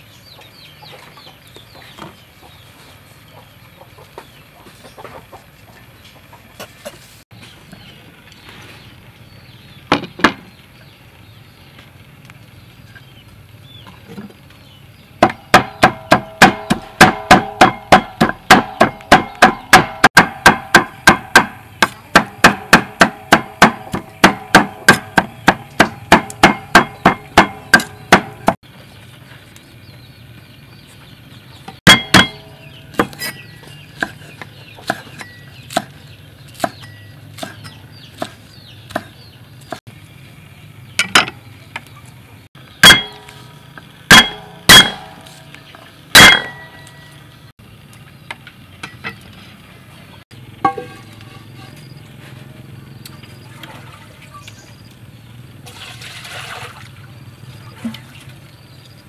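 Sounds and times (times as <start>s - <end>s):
cleaver chopping on wooden board: 15.2s - 28.6s, 31.9s - 33.4s, 34.8s - 36.0s, 36.6s - 36.8s, 37.4s - 39.2s, 42.8s - 43.2s, 44.1s - 45.2s.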